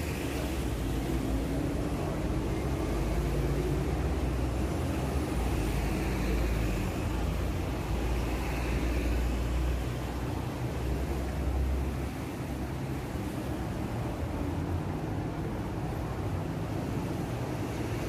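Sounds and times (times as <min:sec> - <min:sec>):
city traffic rumble: 0:00.0 - 0:18.0.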